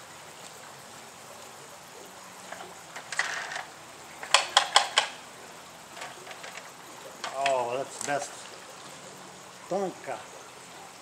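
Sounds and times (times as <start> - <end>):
creek running: 0.0 - 11.0
metallic clacks of loose parts: 2.5 - 5.2, 5.9 - 8.2
toy truck rustling: 2.5 - 5.2, 5.9 - 7.5.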